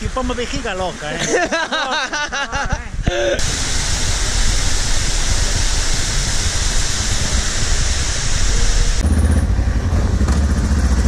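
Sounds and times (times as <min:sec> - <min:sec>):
waterfall rushing into pool: 0:00.0 - 0:09.4
motorcycle engine running: 0:08.4 - 0:11.0.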